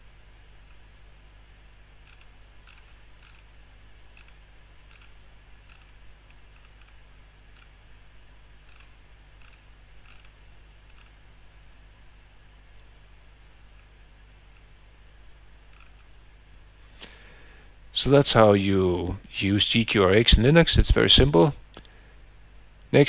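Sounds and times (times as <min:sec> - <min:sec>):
faint steady hum and hiss: 0:00.0 - 0:23.0
computer mouse clicks: 0:02.0 - 0:03.5, 0:04.1 - 0:07.8, 0:08.6 - 0:11.2, 0:15.7 - 0:16.1.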